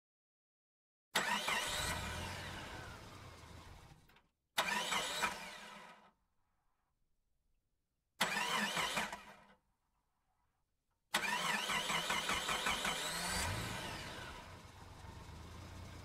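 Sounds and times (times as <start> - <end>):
car engine bursts: 1.2 - 4.0, 11.2 - 16.0.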